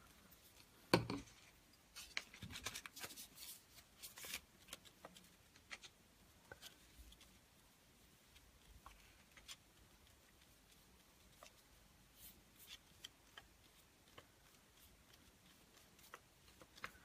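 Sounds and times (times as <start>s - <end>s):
glue brush scratching paper: 6.6s - 17.0s.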